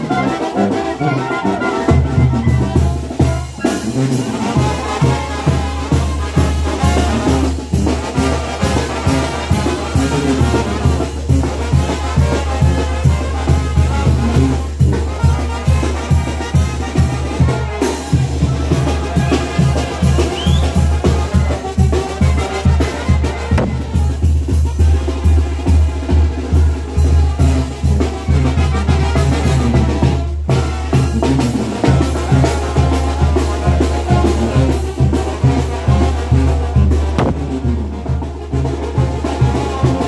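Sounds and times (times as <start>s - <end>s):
brass band music: 0.0s - 40.0s
low bass line: 37.0s - 38.1s.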